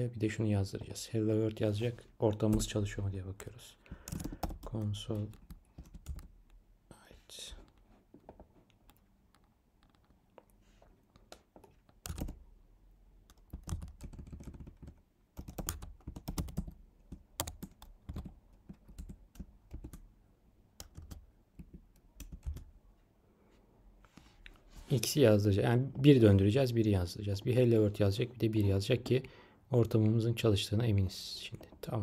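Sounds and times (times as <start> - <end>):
typing on computer keyboard: 3.9 - 6.3, 11.2 - 12.4, 13.3 - 20.1, 20.8 - 22.7.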